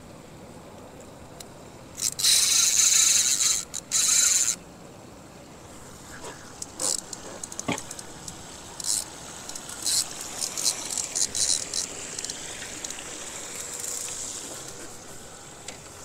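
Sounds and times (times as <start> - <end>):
fishing reel drag buzzing: 2.0 - 4.6, 6.2 - 15.0.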